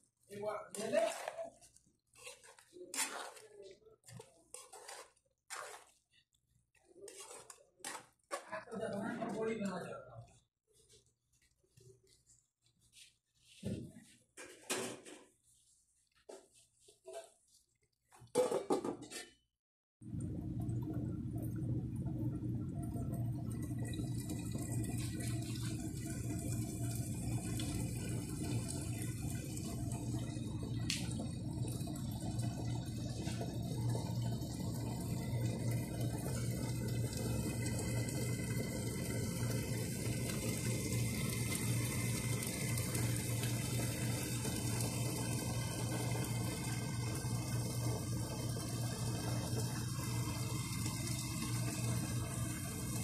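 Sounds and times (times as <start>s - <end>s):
curry bubbling in a pan: 4.0s - 9.3s, 20.0s - 53.0s.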